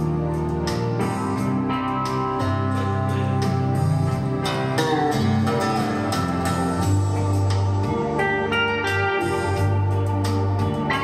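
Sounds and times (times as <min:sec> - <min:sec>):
bass line: 0:00.0 - 0:11.0
plucked guitar notes: 0:00.0 - 0:11.0.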